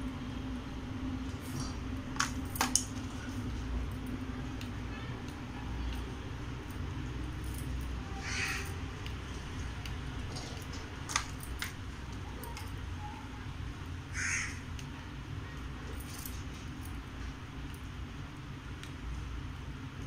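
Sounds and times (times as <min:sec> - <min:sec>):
low steady hum: 0:00.0 - 0:20.0
crow cawing: 0:08.2 - 0:08.8, 0:14.1 - 0:14.7.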